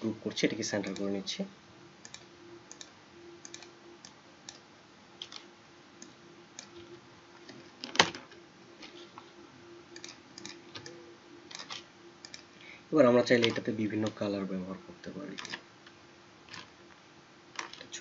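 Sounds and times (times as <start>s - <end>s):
faint steady hum: 0.0s - 18.0s
mouse and keyboard clicks: 10.0s - 12.5s.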